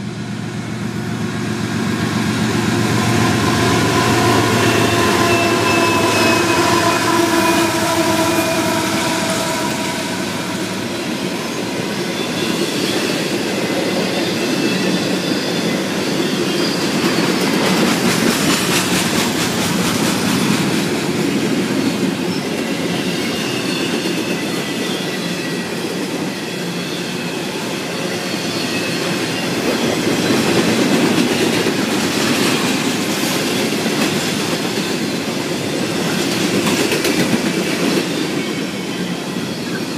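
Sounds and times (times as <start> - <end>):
diesel locomotive engine: 0.0 - 39.9
freight train wheels clacking on rail: 0.0 - 39.9
high wheel squeals: 2.4 - 17.7.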